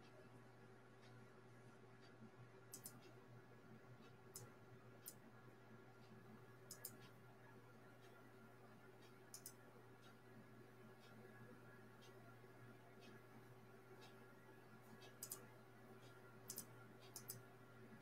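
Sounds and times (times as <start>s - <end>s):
faint steady hum: 0.0s - 18.0s
faint sharp clicks: 2.0s - 3.2s, 4.3s - 5.2s, 6.7s - 7.1s, 9.0s - 10.2s, 15.0s - 17.4s.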